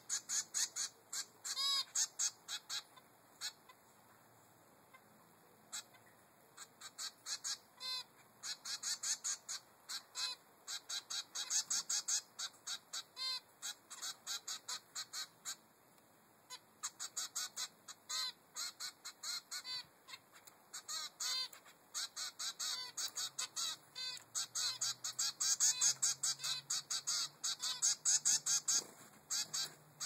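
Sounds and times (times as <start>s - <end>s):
finch chick begging calls: 0.0s - 3.7s, 6.6s - 15.6s, 16.5s - 29.8s.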